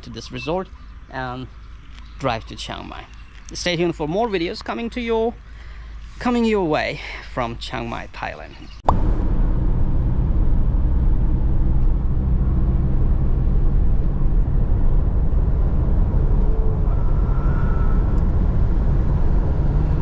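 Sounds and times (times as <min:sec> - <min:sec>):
car engine and tyre rumble: 0:00.0 - 0:20.0.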